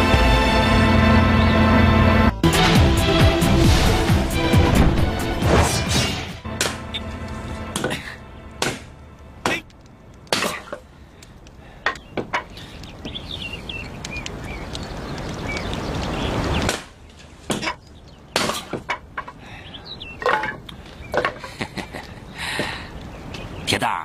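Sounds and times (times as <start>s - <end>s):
hatchet chopping wood: 8.6s - 9.6s.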